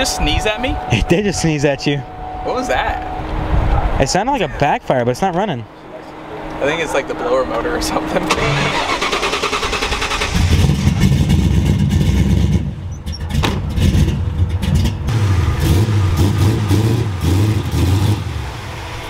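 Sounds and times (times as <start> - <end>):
car engine cranking: 7.6 - 15.1.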